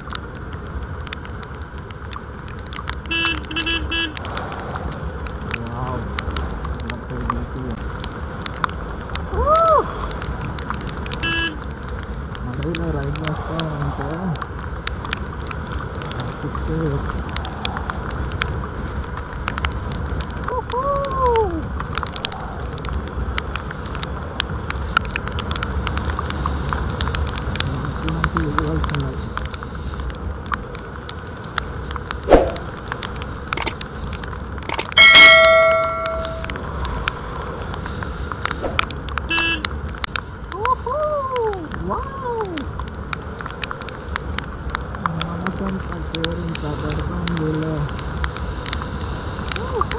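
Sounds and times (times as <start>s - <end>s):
raindrops ticking on camera: 0.0s - 49.9s
wind and road noise: 0.0s - 49.9s
brief tone: 35.0s - 36.5s
loud ringing metallic strike: 35.0s - 36.5s.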